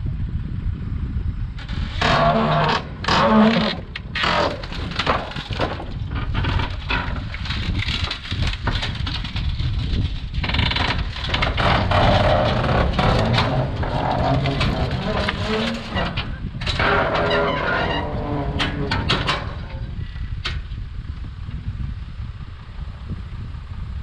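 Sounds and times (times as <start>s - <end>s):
wood and steel scraping: 1.6s - 20.6s
tractor engine under load: 1.6s - 21.7s.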